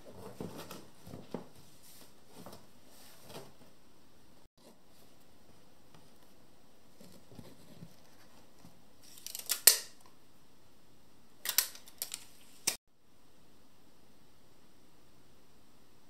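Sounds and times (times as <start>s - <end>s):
tape measure clicking and rattling: 9.0s - 10.0s, 11.4s - 12.8s.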